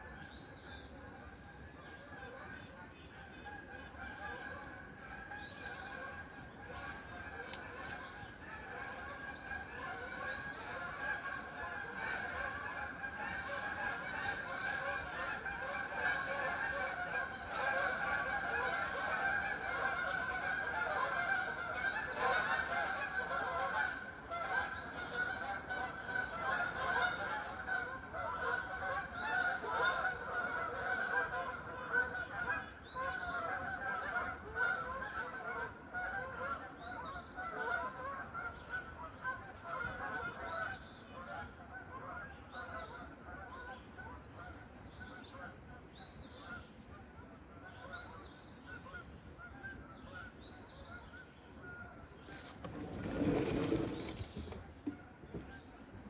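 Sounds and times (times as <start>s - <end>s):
geese honking: 1.3s - 43.8s.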